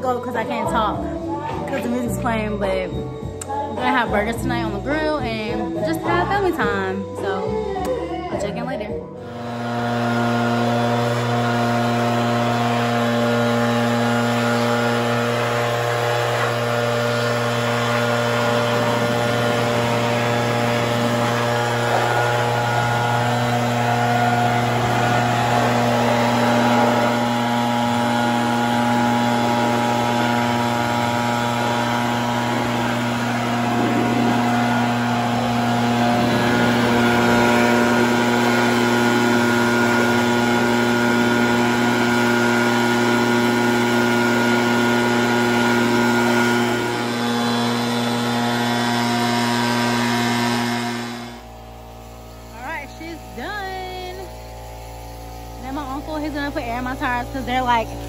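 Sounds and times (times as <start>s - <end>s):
leaf blower running: 9.2s - 58.0s.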